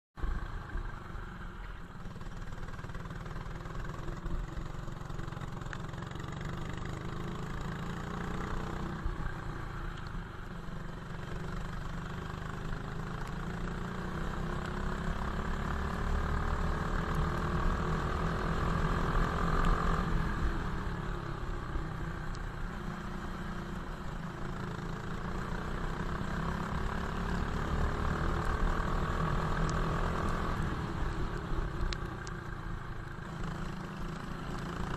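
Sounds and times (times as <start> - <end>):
racing kart engine: 0.8 - 9.1.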